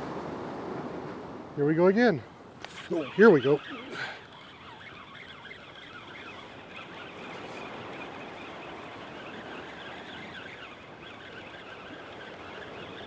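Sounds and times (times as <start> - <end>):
ocean surf against rocks: 0.0 - 13.0.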